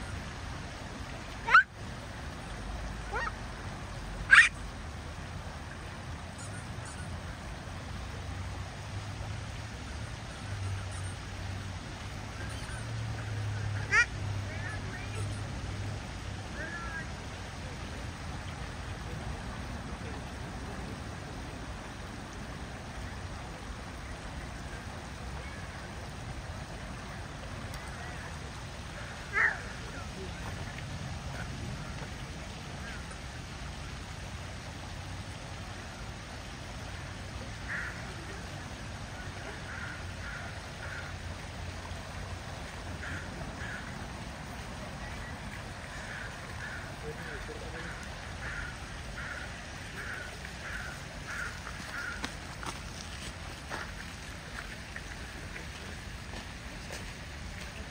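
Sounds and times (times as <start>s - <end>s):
fountain water rushing: 0.0s - 57.9s
faint calls: 1.4s - 1.7s, 3.0s - 3.5s, 4.2s - 4.6s, 12.4s - 15.4s, 27.8s - 30.4s, 45.0s - 52.3s.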